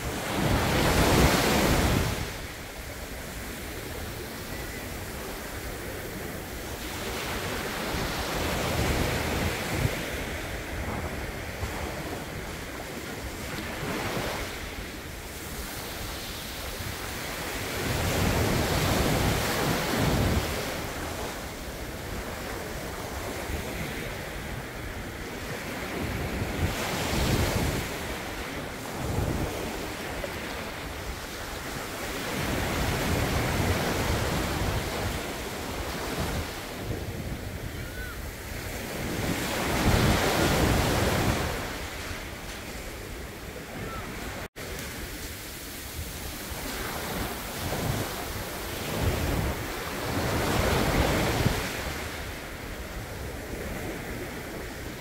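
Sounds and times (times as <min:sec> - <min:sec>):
sea waves breaking on beach: 0:00.0 - 0:55.0.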